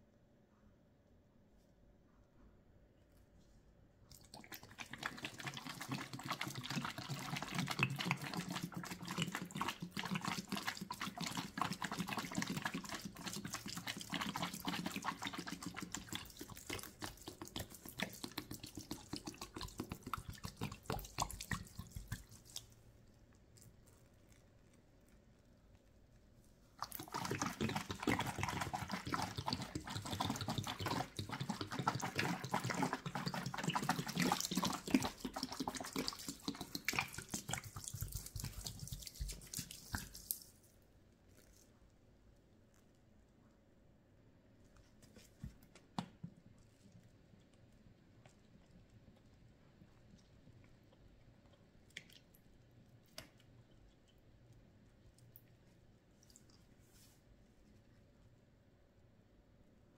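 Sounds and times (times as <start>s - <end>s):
soapy lather squishing and crackling: 4.1s - 25.5s, 26.3s - 40.7s, 41.3s - 41.8s, 46.6s - 57.8s.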